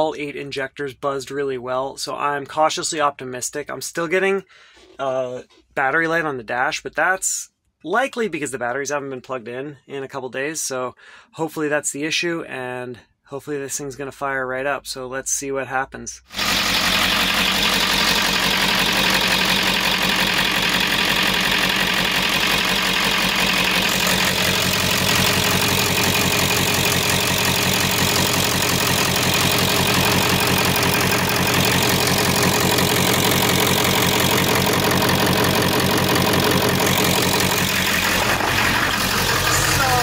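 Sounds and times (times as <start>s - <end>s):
diesel engine idling: 16.3s - 40.0s.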